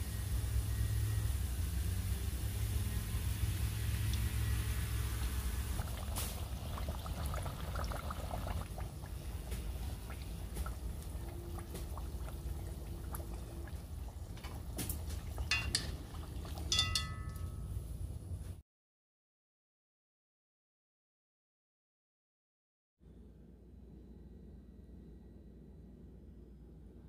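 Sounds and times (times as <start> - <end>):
oil bubbling and crackling: 0.0 - 17.7
metal tongs clinking on pot: 15.5 - 16.0, 16.6 - 17.7.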